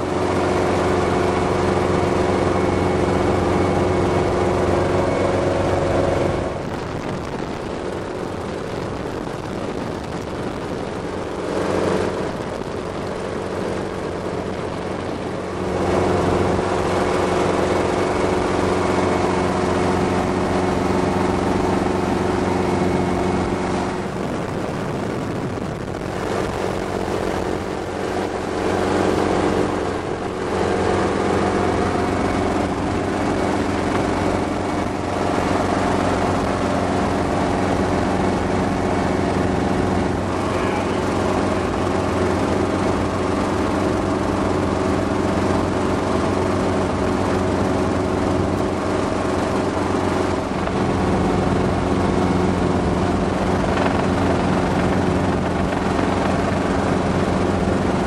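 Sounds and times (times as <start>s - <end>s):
helicopter engine and rotors droning: 0.0s - 58.0s
rush of air: 0.1s - 43.5s.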